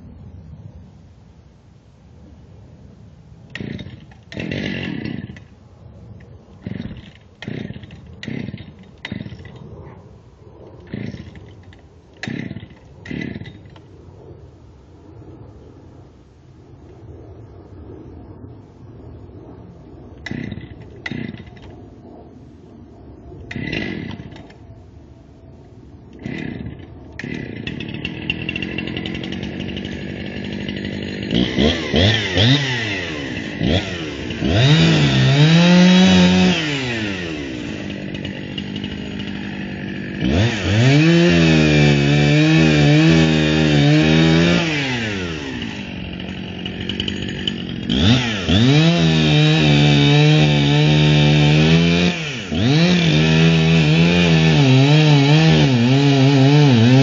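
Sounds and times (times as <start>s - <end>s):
chainsaw cutting wood: 3.5s - 5.6s, 6.6s - 9.8s, 10.8s - 13.9s, 20.2s - 21.8s, 23.4s - 24.6s, 26.0s - 57.0s.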